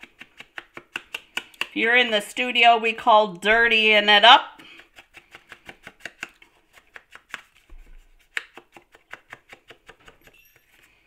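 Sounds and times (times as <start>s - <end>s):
sponge dauber tapping: 0.0s - 1.8s, 3.6s - 10.3s.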